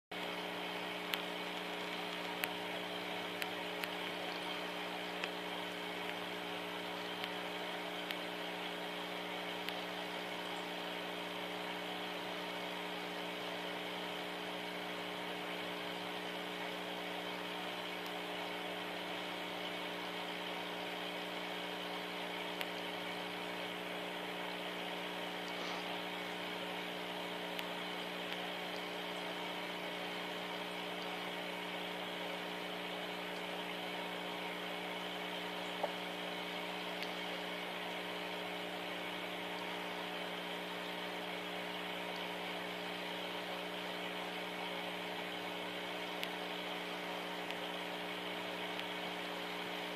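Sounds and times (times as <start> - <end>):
mechanical hum: 0.1 - 49.9
faint clicks: 1.1 - 2.6
constant hiss: 20.8 - 49.9.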